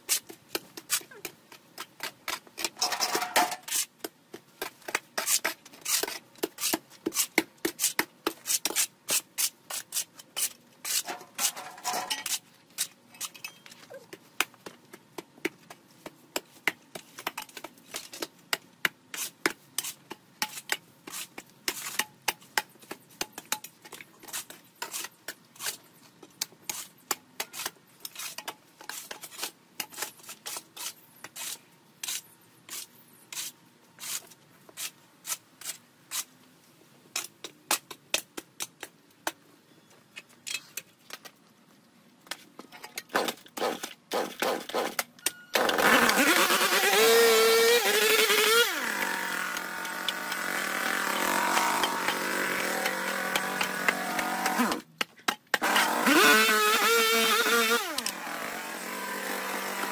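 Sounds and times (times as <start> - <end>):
shovel scraping mud on concrete: 0.0 - 14.1, 16.4 - 36.3, 42.3 - 45.0.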